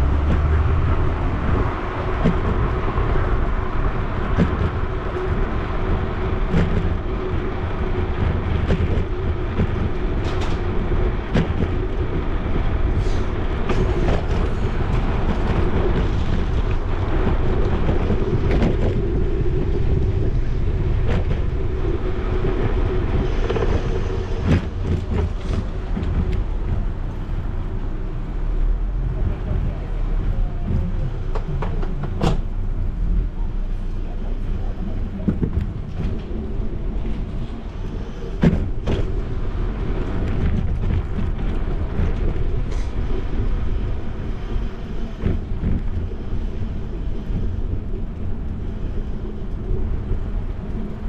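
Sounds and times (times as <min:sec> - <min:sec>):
bicycle tyres rolling on street: 0:00.0 - 0:51.0
wind rumbling on microphone: 0:00.0 - 0:51.0
rattles and knocks from bumps: 0:35.0 - 0:36.4.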